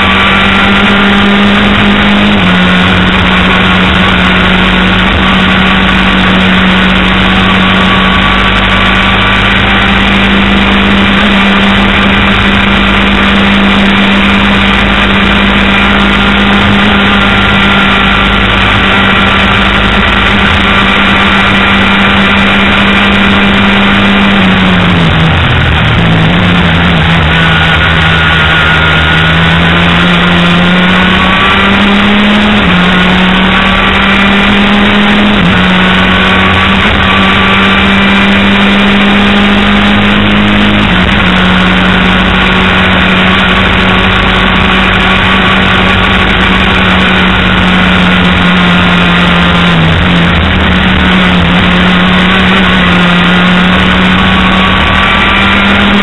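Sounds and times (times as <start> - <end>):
racing engine at high revs: 0.0 - 56.0.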